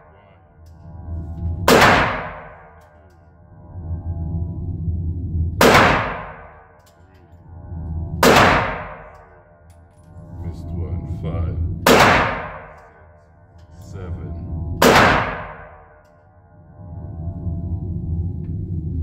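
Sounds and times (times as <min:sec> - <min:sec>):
steady low hum: 0:00.0 - 0:19.0
pistol shots with ringing echo: 0:01.7 - 0:02.5, 0:05.6 - 0:06.4, 0:08.2 - 0:09.0, 0:11.8 - 0:12.8, 0:14.8 - 0:15.7.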